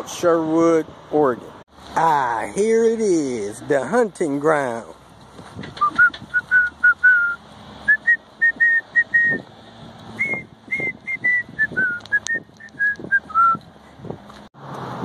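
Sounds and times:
person whistling a tune: 0:05.8 - 0:09.4, 0:10.2 - 0:13.6.

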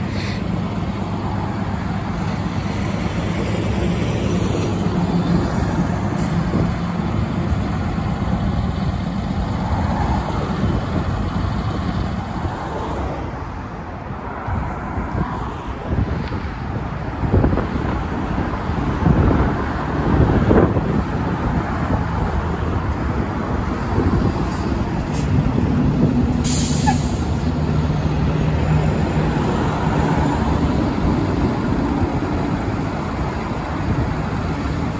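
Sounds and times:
air brakes hissing: 0:00.0 - 0:00.6, 0:26.4 - 0:27.4
diesel truck engine idling: 0:00.0 - 0:12.5, 0:21.2 - 0:34.9
traffic: 0:00.0 - 0:34.9.

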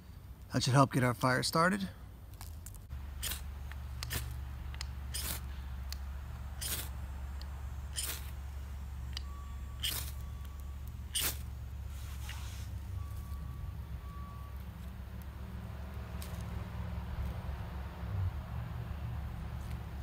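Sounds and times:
knife scraping ferro rod: 0:05.1 - 0:05.5, 0:06.6 - 0:07.0, 0:07.9 - 0:08.4, 0:09.8 - 0:10.2, 0:11.1 - 0:11.4.

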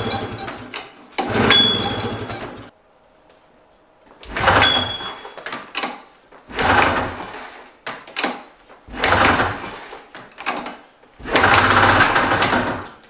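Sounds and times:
recoil starter rope pulled: 0:00.0 - 0:02.7, 0:05.8 - 0:13.0.

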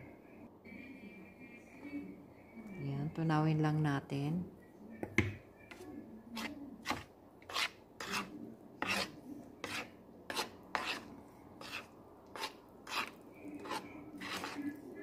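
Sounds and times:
fork scraping and tapping a bowl: 0:06.4 - 0:14.8.

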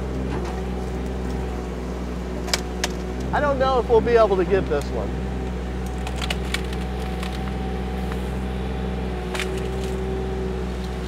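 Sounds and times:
excavator diesel engine: 0:00.0 - 0:11.0
steady whine: 0:00.0 - 0:11.0
wood cracking and splintering: 0:05.8 - 0:07.6, 0:09.2 - 0:10.0.

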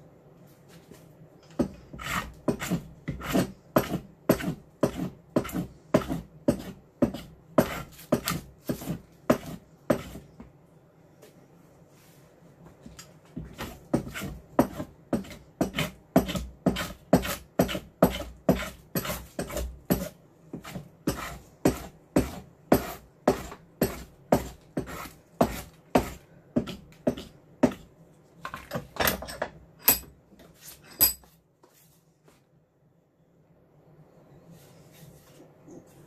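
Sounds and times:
hand plane shaving wood: 0:01.9 - 0:10.2, 0:13.5 - 0:26.2.

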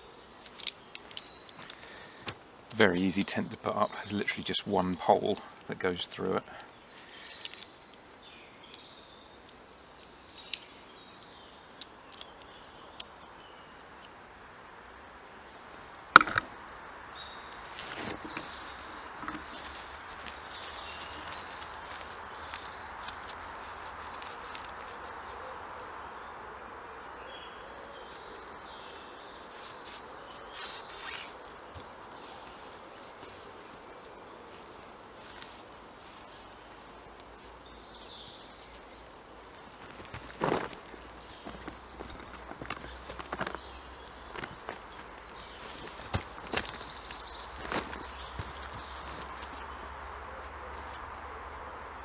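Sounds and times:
birds singing: 0:00.0 - 0:14.1, 0:15.4 - 0:51.4
sharp knocks: 0:16.2 - 0:16.5.

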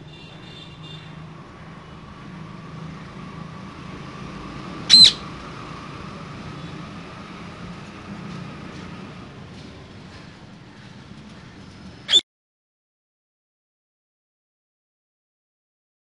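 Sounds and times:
parakeet call: 0:04.8 - 0:05.3.

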